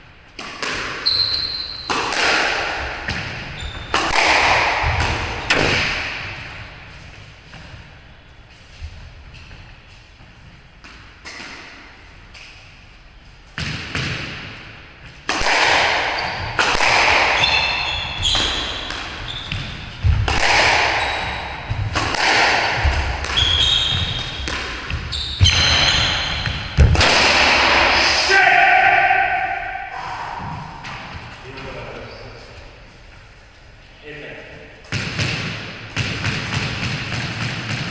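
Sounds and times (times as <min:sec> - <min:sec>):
squash ball hits echoing: 0:00.3 - 0:06.9, 0:13.6 - 0:31.3, 0:34.8 - 0:37.9
shoes squeaking on wooden floor: 0:01.0 - 0:01.9, 0:03.4 - 0:04.0, 0:17.4 - 0:20.1, 0:22.8 - 0:26.8.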